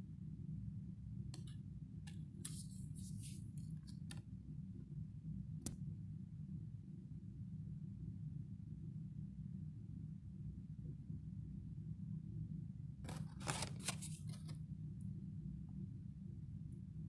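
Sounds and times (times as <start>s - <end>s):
steady low hum: 0.0s - 17.0s
card clicks and rustles: 2.4s - 4.2s, 13.1s - 14.6s.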